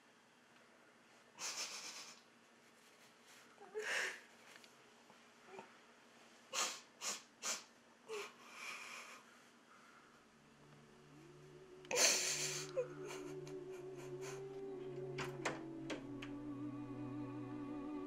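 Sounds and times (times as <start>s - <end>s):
woman sobbing: 1.4s - 2.2s, 3.6s - 4.3s, 6.6s - 9.3s, 11.1s - 16.0s
woman sniffing: 6.5s - 9.3s.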